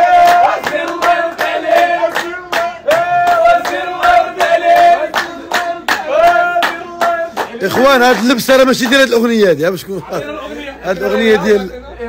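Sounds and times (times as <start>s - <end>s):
voices singing a chant: 0.0s - 7.7s.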